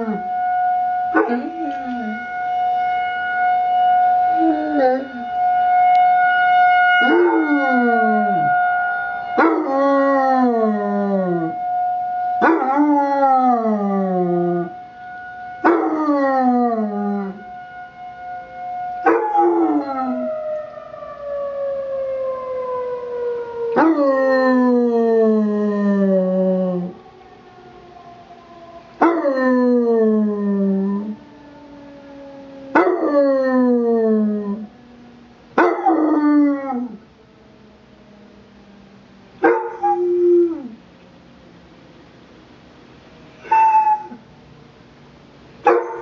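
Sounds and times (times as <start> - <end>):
emergency warning siren: 0.0 - 42.0
puppy howling: 1.2 - 2.2, 9.4 - 11.6, 23.6 - 27.0, 39.4 - 40.8, 43.4 - 44.2.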